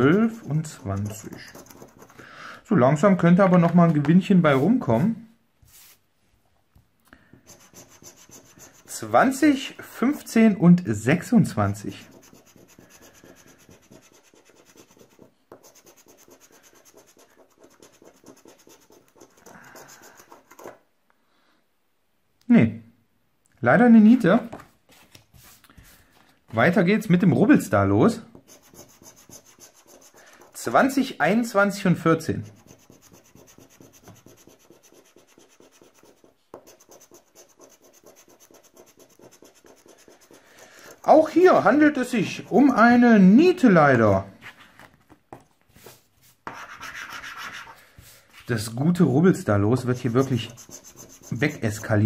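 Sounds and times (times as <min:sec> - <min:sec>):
scraper scratching lottery ticket: 0:00.3 - 0:02.2, 0:12.0 - 0:20.5, 0:32.5 - 0:41.2, 0:49.8 - 0:52.0
scratching lottery ticket coating: 0:49.8 - 0:52.0.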